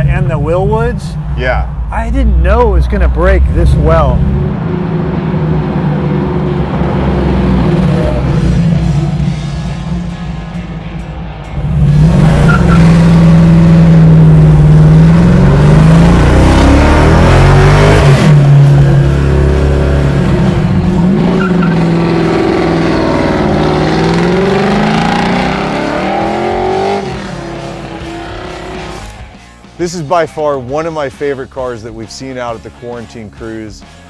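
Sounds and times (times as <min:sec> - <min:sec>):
car engine revving hard: 0:03.3 - 0:09.2, 0:11.6 - 0:29.0.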